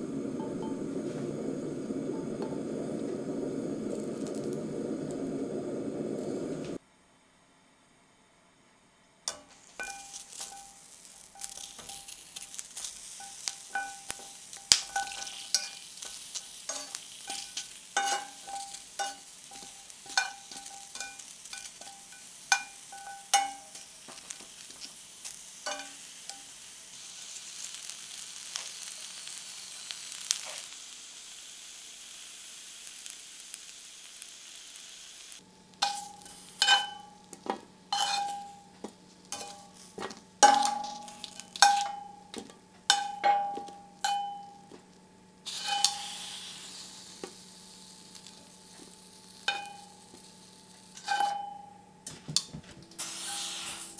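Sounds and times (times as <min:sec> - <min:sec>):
peppers sizzling in frying pan: 0:00.0 - 0:06.8, 0:09.3 - 0:53.9
metal tongs clinking on pan: 0:09.3 - 0:24.2, 0:25.6 - 0:26.5, 0:35.8 - 0:38.7, 0:39.3 - 0:44.8, 0:45.5 - 0:46.4, 0:49.4 - 0:50.1, 0:51.0 - 0:51.8.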